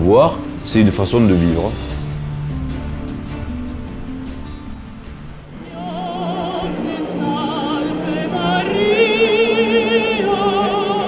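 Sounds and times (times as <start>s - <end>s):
sustained accompaniment: 0.0s - 11.0s
operatic singing: 5.5s - 11.0s.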